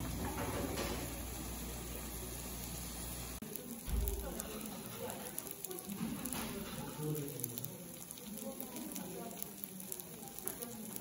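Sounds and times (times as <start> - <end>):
rice sizzling in a hot pan: 0.0 - 11.0.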